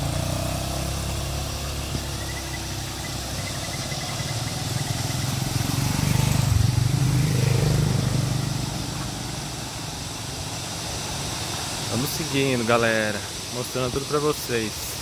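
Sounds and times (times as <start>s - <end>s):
motorcycle engine passing: 0.0s - 9.8s
river running over rocks: 0.0s - 15.0s.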